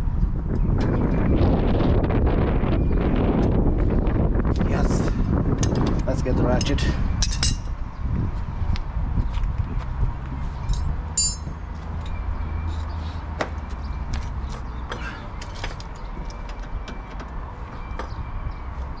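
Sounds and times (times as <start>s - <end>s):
steady low rumble: 0.0s - 12.5s
high metallic clink: 10.7s - 12.2s.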